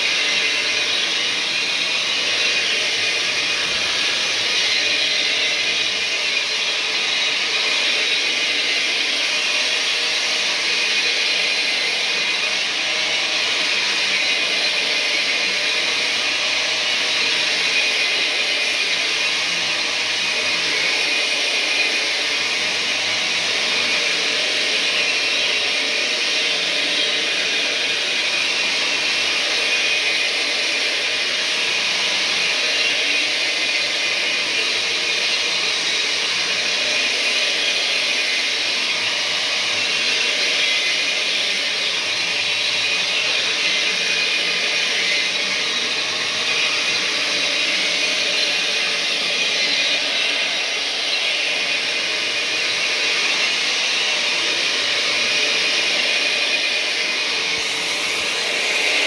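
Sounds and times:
carpet machine running: 0.0s - 59.0s.

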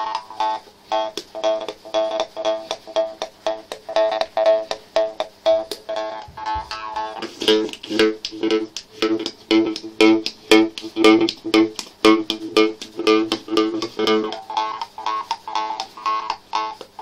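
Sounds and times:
jew's harp twanging: 1.3s - 16.7s.

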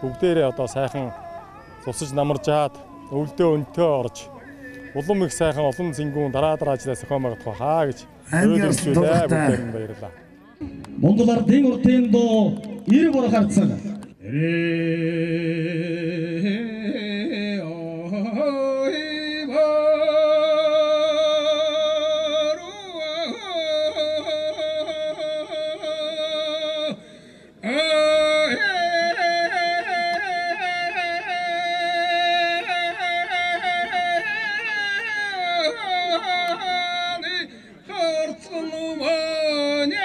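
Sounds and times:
solo voice singing long notes: 14.2s - 40.0s.

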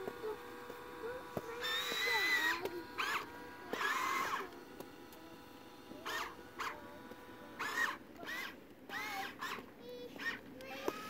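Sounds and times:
electric motors whirring: 0.0s - 11.0s.

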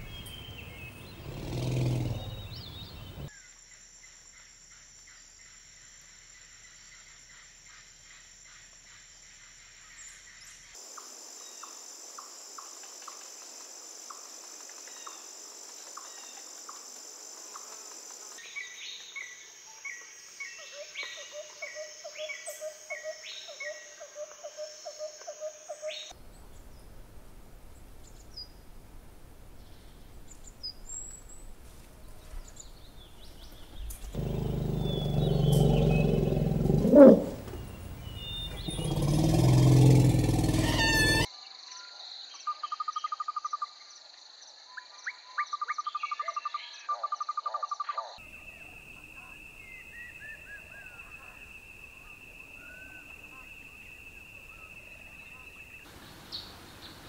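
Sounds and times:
bird chirps: 0.0s - 3.3s, 32.5s - 41.3s
high insect buzz: 0.0s - 3.3s, 34.0s - 41.3s
fast repeated call: 34.2s - 41.3s
sharp call rising in pitch: 34.2s - 41.3s.

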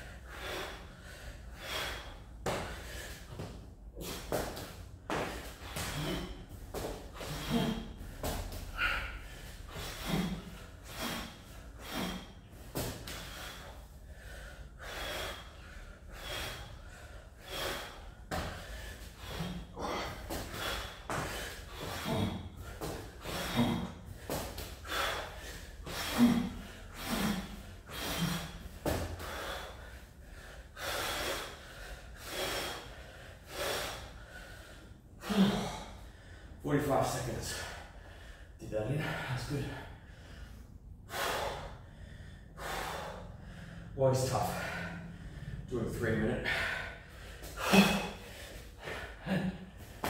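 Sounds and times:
man breathing hard: 0.0s - 50.0s
forceful gasps: 0.1s - 36.6s, 37.4s - 45.7s, 46.4s - 50.0s.

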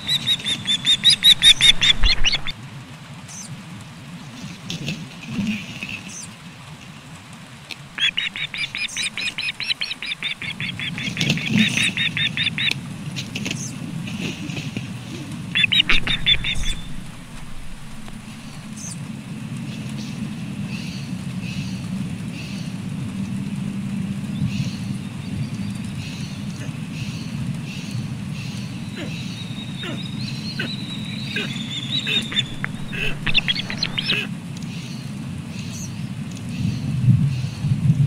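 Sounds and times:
osprey alarm calls: 0.0s - 2.5s, 7.9s - 12.8s, 15.4s - 19.0s, 28.4s - 34.3s
low wind rumble on microphone: 0.0s - 9.7s, 10.5s - 38.0s.

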